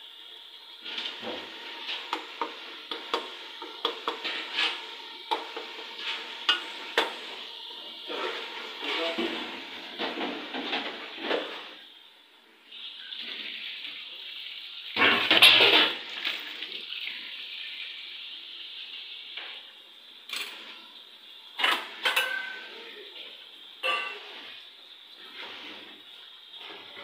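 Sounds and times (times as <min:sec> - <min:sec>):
steady hiss: 0:00.0 - 0:15.0, 0:15.7 - 0:27.0
dishes and utensils clattering: 0:02.0 - 0:07.2, 0:15.0 - 0:16.0, 0:20.3 - 0:20.8, 0:21.6 - 0:22.7, 0:23.8 - 0:24.6.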